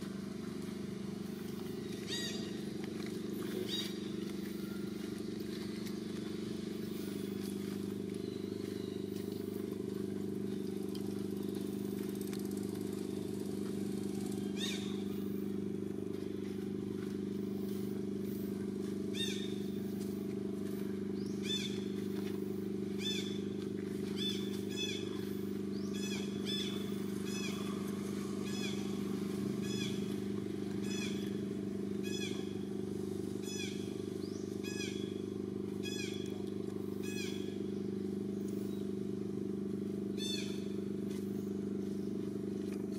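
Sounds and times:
low mechanical drone: 0:00.0 - 0:42.9
short high squeaky calls: 0:02.0 - 0:02.6, 0:03.5 - 0:04.8, 0:14.4 - 0:15.1, 0:19.1 - 0:19.6, 0:24.2 - 0:25.1, 0:25.9 - 0:27.8, 0:28.4 - 0:29.0, 0:30.8 - 0:31.4.

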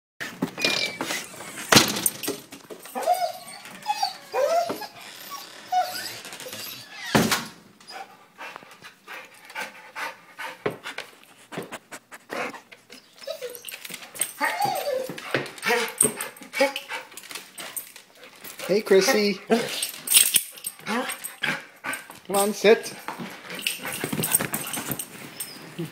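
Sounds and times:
dog whining and whimpering: 0:02.9 - 0:07.1, 0:12.4 - 0:16.9, 0:20.8 - 0:21.3, 0:23.5 - 0:25.9
dog panting: 0:07.9 - 0:25.8
light clicks and bumps: 0:19.5 - 0:25.9.

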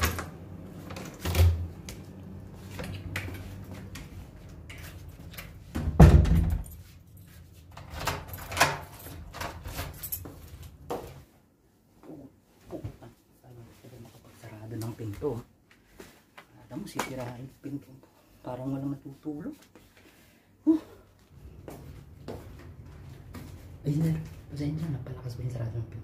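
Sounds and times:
wooden door banging shut: 0:05.8 - 0:06.7.

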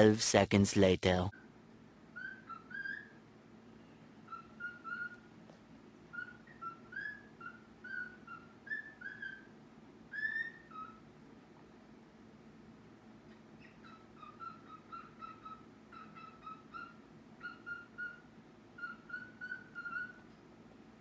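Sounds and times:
pet bird whistling: 0:02.1 - 0:05.3, 0:06.1 - 0:11.1, 0:13.3 - 0:20.3.

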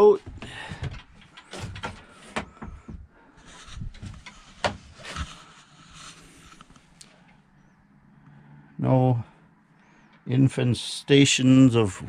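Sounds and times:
knocks and clicks: 0:00.2 - 0:03.1
rustling: 0:00.3 - 0:07.2.

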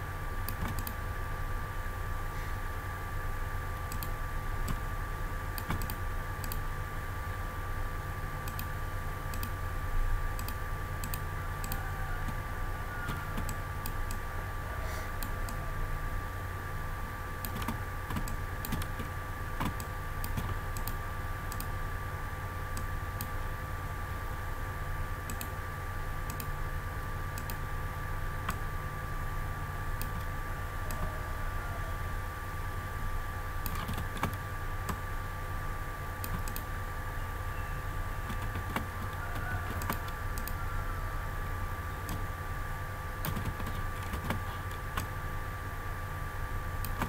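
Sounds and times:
steady background hum: 0:00.0 - 0:47.0
keyboard and mouse clicks: 0:00.5 - 0:01.0, 0:03.9 - 0:04.8, 0:05.6 - 0:06.6, 0:08.4 - 0:08.7, 0:09.3 - 0:09.6, 0:10.4 - 0:12.4, 0:13.1 - 0:14.2, 0:17.4 - 0:21.7, 0:25.3 - 0:25.5, 0:26.3 - 0:26.5, 0:30.0 - 0:30.3, 0:33.6 - 0:35.0, 0:36.2 - 0:36.7, 0:38.3 - 0:40.6, 0:42.0 - 0:42.3, 0:43.2 - 0:45.1.

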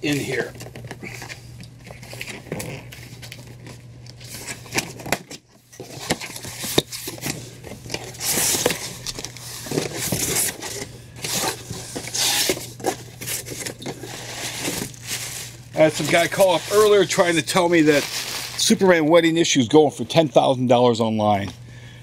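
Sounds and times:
packing material rustling: 0:00.0 - 0:19.0
cardboard flaps scraping: 0:05.8 - 0:18.7.

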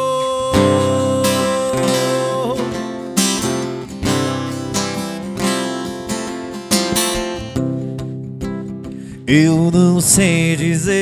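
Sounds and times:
strummed acoustic guitar: 0:00.0 - 0:11.0.

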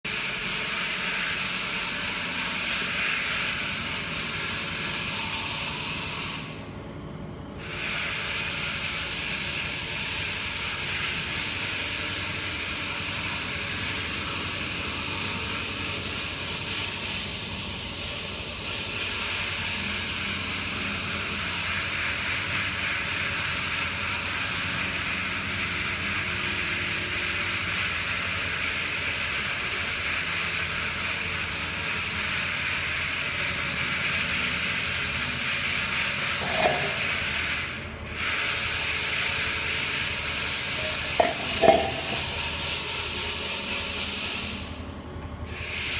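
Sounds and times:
low machine hum: 0:40.6 - 0:43.0.

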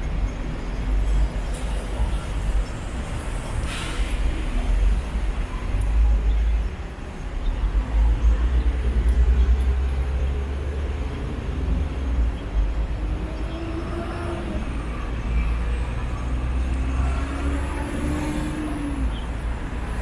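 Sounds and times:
road traffic rumble: 0:00.0 - 0:20.0
vehicle engine accelerating: 0:07.9 - 0:20.0.

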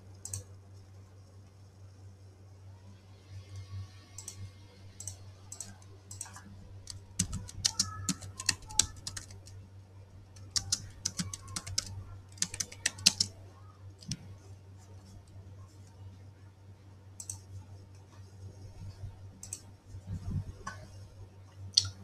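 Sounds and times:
steady low hum: 0:00.0 - 0:22.0
typing on computer keyboard: 0:05.0 - 0:09.6, 0:10.4 - 0:13.4.

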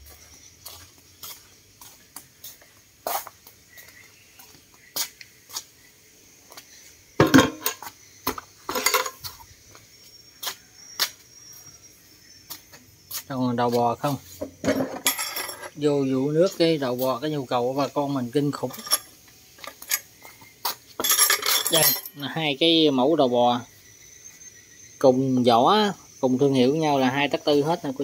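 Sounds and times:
metal parts clinking and knocking: 0:07.2 - 0:07.8, 0:08.7 - 0:09.2, 0:14.6 - 0:15.8, 0:18.7 - 0:20.1, 0:21.0 - 0:22.2
metal parts clattering: 0:08.7 - 0:09.2, 0:14.6 - 0:15.7, 0:18.7 - 0:19.1, 0:21.0 - 0:22.2.

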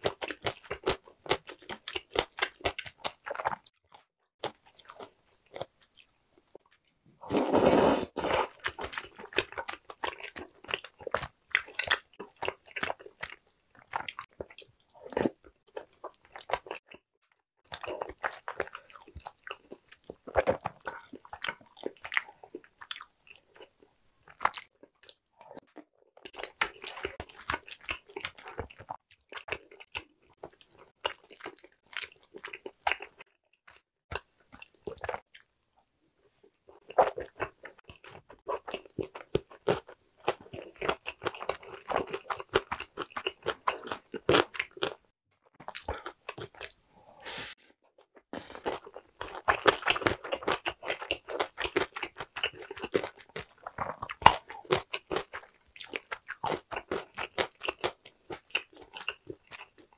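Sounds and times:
person chewing: 0:00.0 - 0:03.7, 0:04.4 - 0:17.0, 0:17.7 - 0:35.5, 0:36.4 - 0:47.6, 0:48.3 - 0:59.9.

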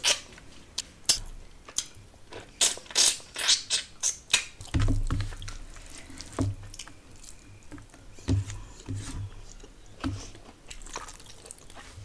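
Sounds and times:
chewing with wet mouth smacks: 0:09.6 - 0:12.0.

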